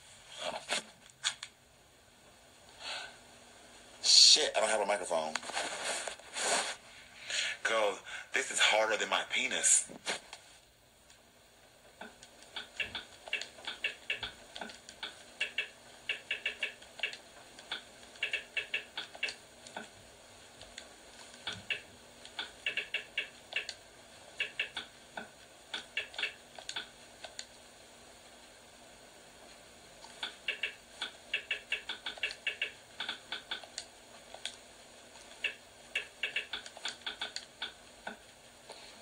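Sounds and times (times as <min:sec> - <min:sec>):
key presses clicking: 0:30.2 - 0:33.8, 0:35.4 - 0:37.8.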